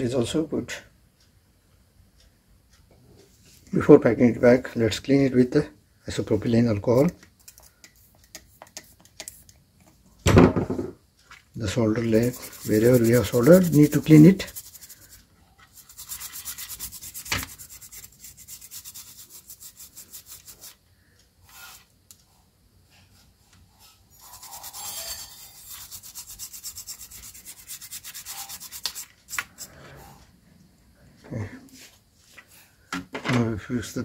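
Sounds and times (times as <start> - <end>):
toothbrush scrubbing circuit board: 11.8 - 20.8, 24.1 - 29.8.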